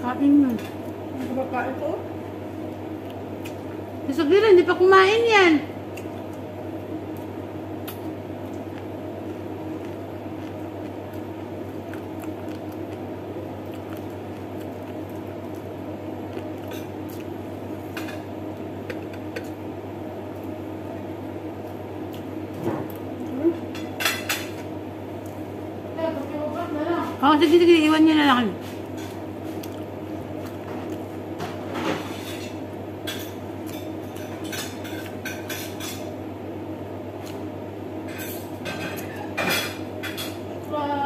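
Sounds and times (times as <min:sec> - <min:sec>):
steady low hum: 0:00.0 - 0:41.0
chewing and wet squishing: 0:02.8 - 0:03.9, 0:05.9 - 0:17.5, 0:21.5 - 0:23.9, 0:28.8 - 0:31.6.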